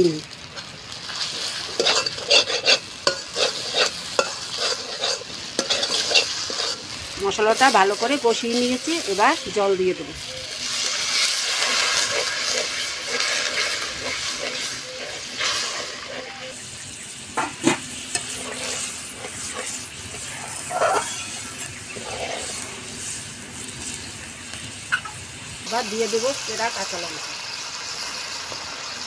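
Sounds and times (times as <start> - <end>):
water sizzling in hot pan: 0.0 - 29.0
metal spatula scraping pan: 1.1 - 9.5, 10.7 - 16.7, 17.4 - 21.2, 21.9 - 23.1.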